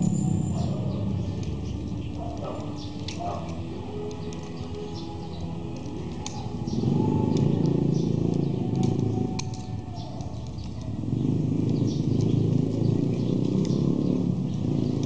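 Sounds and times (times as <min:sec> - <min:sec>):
low engine-like rumble: 0:00.0 - 0:15.0.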